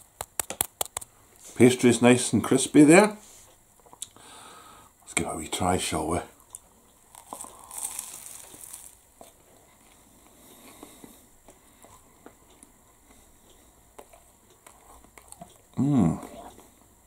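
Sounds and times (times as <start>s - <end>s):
quiet chewing: 3.4s - 4.2s, 6.3s - 16.9s
pastry crackling under a bite: 7.0s - 9.0s.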